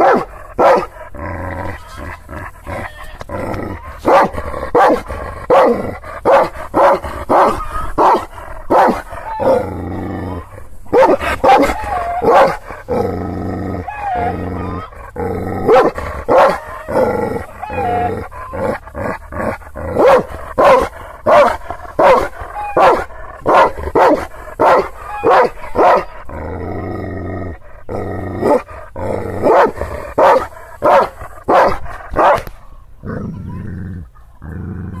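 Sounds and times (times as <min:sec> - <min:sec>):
dog barking deeply: 0:00.0 - 0:01.3, 0:02.3 - 0:09.7, 0:10.3 - 0:13.0, 0:13.8 - 0:26.5, 0:28.4 - 0:32.5.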